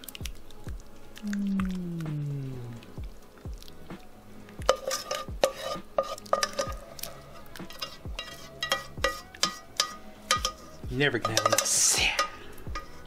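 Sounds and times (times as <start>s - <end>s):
plastic spatula scraping a skillet: 4.7s - 13.0s
spatula knocking metal pan: 7.7s - 13.0s.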